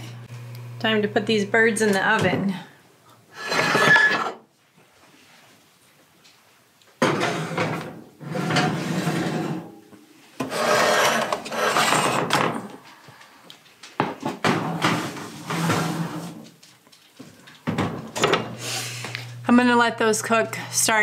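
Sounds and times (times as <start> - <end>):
metal pans scraping on oven racks: 3.4 - 4.4, 7.0 - 9.7, 10.4 - 12.6, 14.6 - 16.4.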